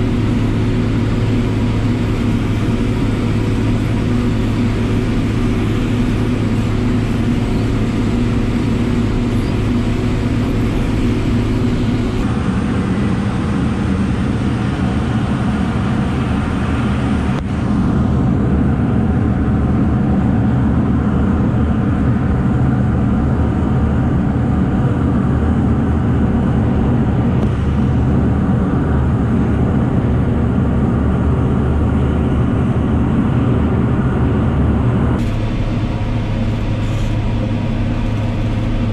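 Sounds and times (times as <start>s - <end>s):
farm machinery diesel engines: 0.0s - 38.9s.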